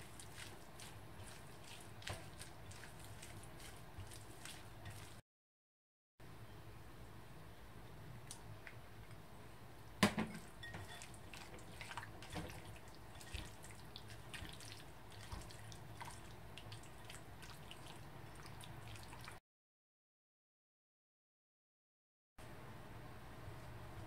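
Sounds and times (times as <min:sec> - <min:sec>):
spatula stirring wet food: 0:00.0 - 0:05.2, 0:10.2 - 0:19.4
spatula scraping glass bowl: 0:10.4 - 0:11.5.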